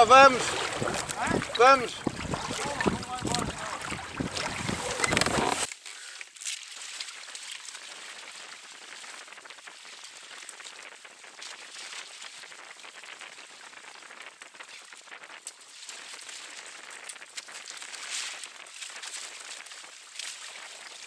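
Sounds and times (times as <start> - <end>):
water hissing along a hull: 0.0 - 5.7.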